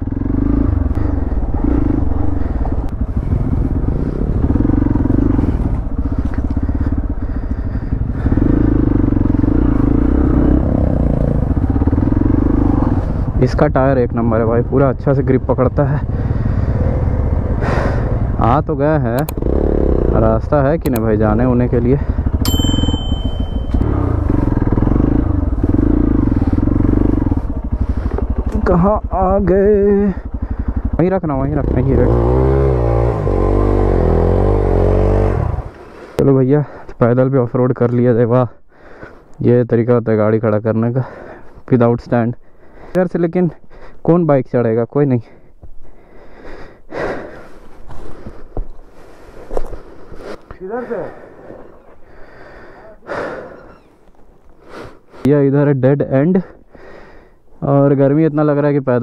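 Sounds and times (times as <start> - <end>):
motorcycle engine running: 0.0 - 36.2.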